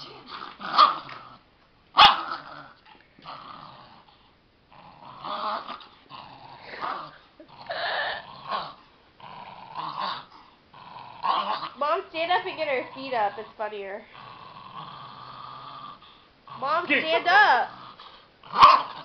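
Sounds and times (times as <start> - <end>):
dog growling: 0.0 - 1.4, 2.0 - 19.0
dog barking: 2.0 - 2.2.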